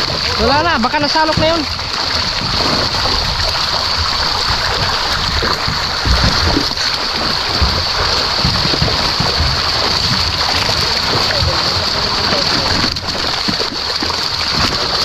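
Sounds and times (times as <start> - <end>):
fish thrashing and splashing: 0.0 - 15.0.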